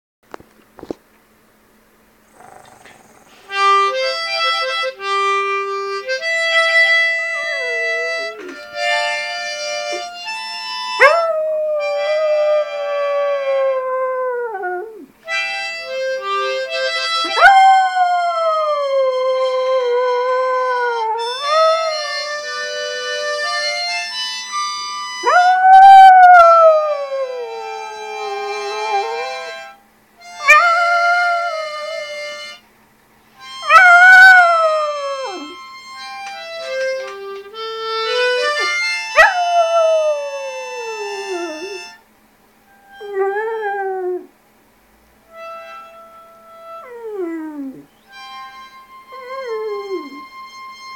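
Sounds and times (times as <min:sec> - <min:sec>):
harmonica notes and chords: 0:03.3 - 0:11.2, 0:15.2 - 0:17.5, 0:18.2 - 0:43.7, 0:45.2 - 0:50.9
dog howling: 0:07.4 - 0:08.6, 0:11.0 - 0:15.1, 0:25.2 - 0:29.6, 0:30.4 - 0:32.2, 0:33.7 - 0:35.6, 0:38.6 - 0:42.0, 0:46.8 - 0:47.9, 0:49.2 - 0:50.2.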